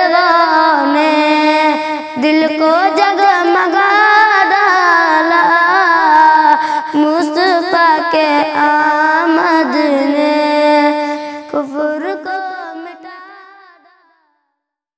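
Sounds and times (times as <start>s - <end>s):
boy singing long notes: 0.0s - 13.9s.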